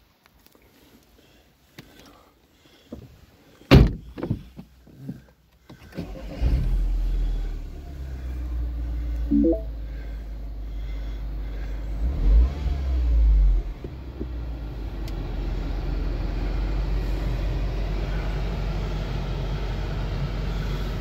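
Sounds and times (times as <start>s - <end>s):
car engine starting and idling: 5.1s - 21.0s
short rising beep: 9.3s - 9.7s.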